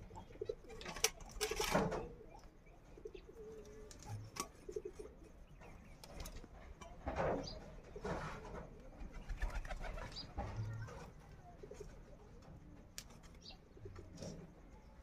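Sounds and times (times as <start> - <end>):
bird cooing: 0.0 - 6.4, 13.4 - 15.0.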